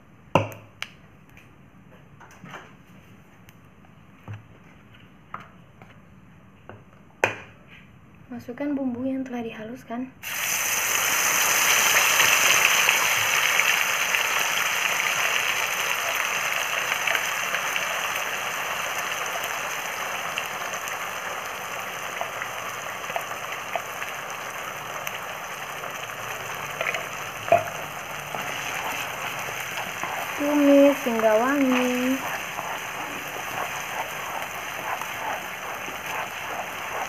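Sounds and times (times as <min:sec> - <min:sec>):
paste sizzling in hot oil: 0:10.2 - 0:37.0.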